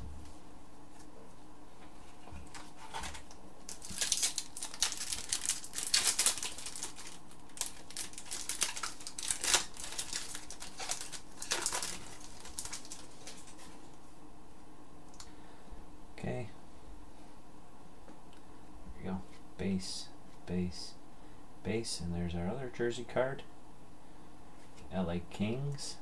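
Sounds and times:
foil wrapper crinkling: 2.5s - 14.0s.

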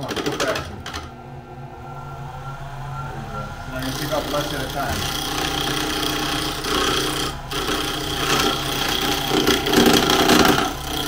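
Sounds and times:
lathe motor hum: 0.0s - 11.0s
chisel scraping spinning wood: 3.7s - 11.0s.

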